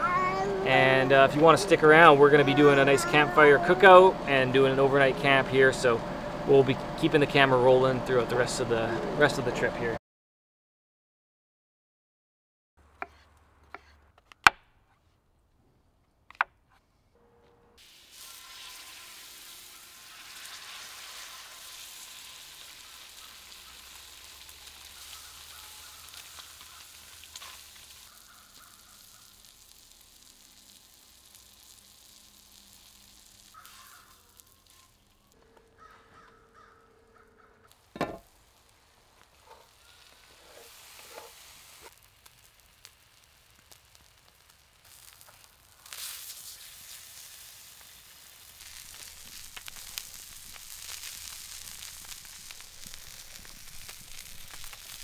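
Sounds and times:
fish sizzling on a griddle: 17.8s - 36.3s, 37.6s - 55.0s.

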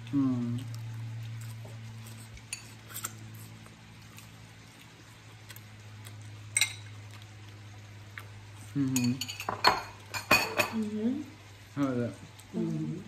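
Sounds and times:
low steady hum: 0.0s - 13.0s
fork clinking on ceramic bowl: 6.6s - 6.9s, 9.0s - 10.8s.

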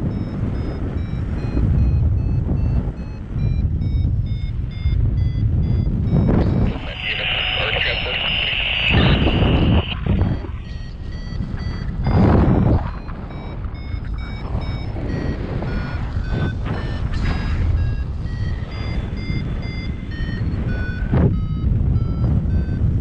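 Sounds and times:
variometer beeping: 0.0s - 23.0s
wind rushing over microphone: 0.0s - 23.0s.

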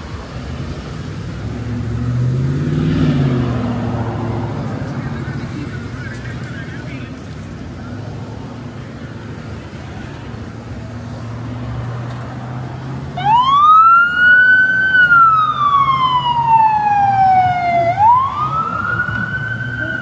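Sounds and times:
siren wailing: 13.2s - 20.0s.

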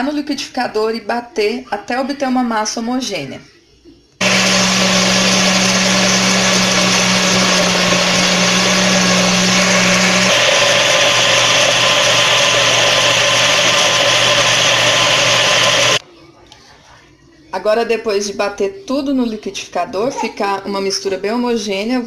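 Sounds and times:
blender motor churning batter: 4.2s - 16.0s.

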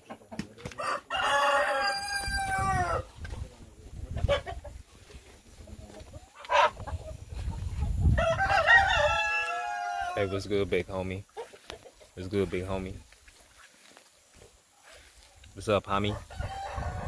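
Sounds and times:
chicken clucking: 0.0s - 1.5s, 2.3s - 8.2s, 11.2s - 13.1s
rooster crowing: 0.8s - 3.1s, 8.1s - 10.5s, 16.1s - 17.0s.

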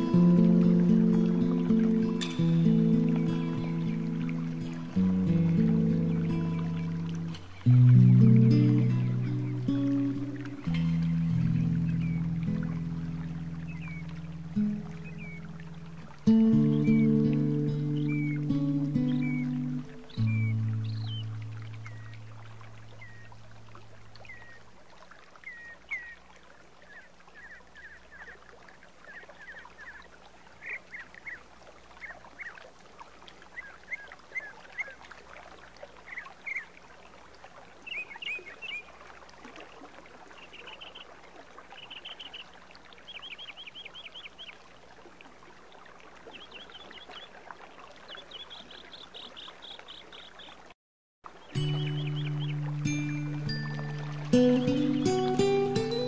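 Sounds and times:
low sustained music note: 0.0s - 23.9s, 51.5s - 56.0s
birds chirping: 0.0s - 24.7s, 25.4s - 26.2s, 26.8s - 28.4s, 36.1s - 36.8s, 37.8s - 38.9s, 40.3s - 41.1s, 41.7s - 44.6s, 46.3s - 47.4s, 48.0s - 50.6s, 51.3s - 56.0s
mountain stream running: 0.0s - 56.0s.

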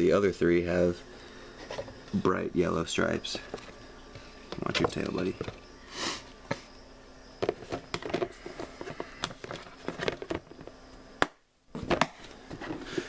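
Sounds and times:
plastic tub clicks and knocks: 7.4s - 12.2s.

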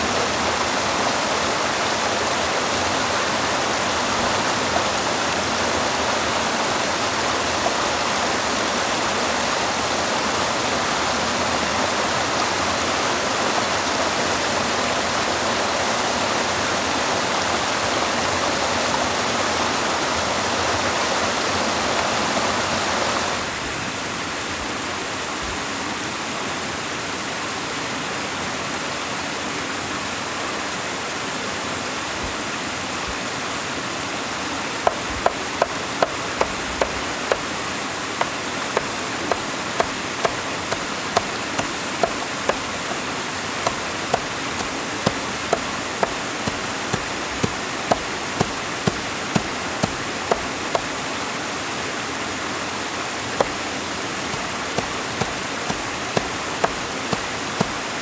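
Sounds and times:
steady rushing noise: 52.7s - 58.0s.

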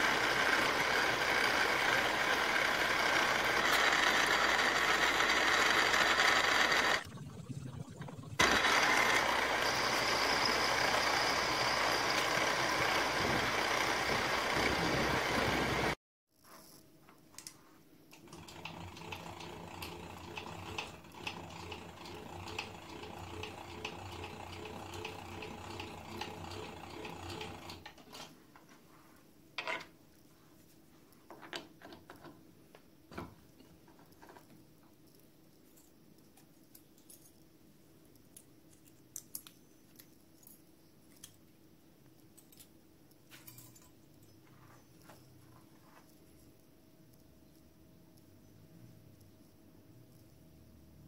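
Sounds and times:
milling machine spindle running: 0.0s - 7.0s, 8.4s - 16.0s.

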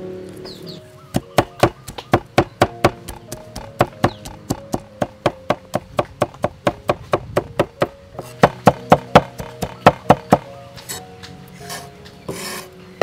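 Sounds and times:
cleaver chopping on wooden board: 1.1s - 10.4s.

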